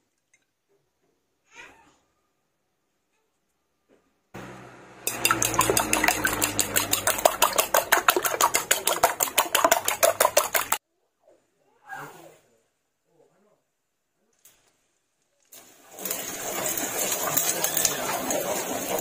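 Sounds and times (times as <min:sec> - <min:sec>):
fork beating eggs in bowl: 0:05.1 - 0:10.8.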